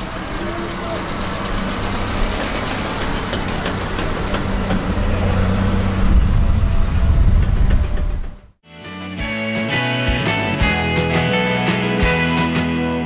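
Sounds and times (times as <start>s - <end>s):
car engine idling: 0.0s - 8.6s.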